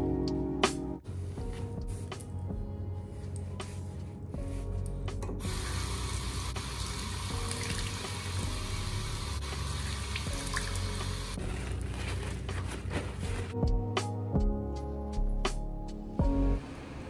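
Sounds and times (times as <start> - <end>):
tap water running into sink: 5.4 - 11.3
hands washing under water: 6.6 - 8.9, 9.5 - 13.5.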